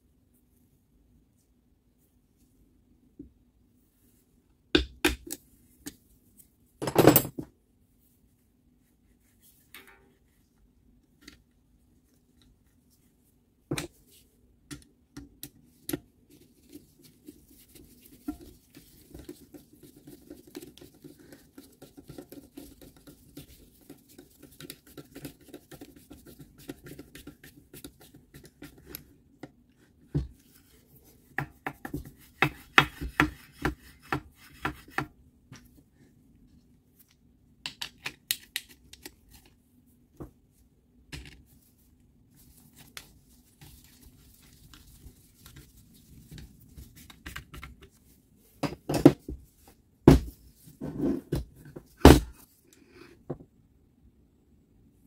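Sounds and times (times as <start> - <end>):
faint scraping and rubbing: 50.4 - 53.3.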